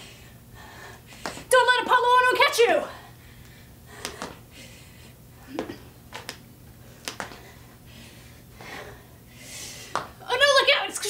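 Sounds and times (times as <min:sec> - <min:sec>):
heavy breathing: 0:00.0 - 0:01.5, 0:02.8 - 0:06.0, 0:06.8 - 0:10.0.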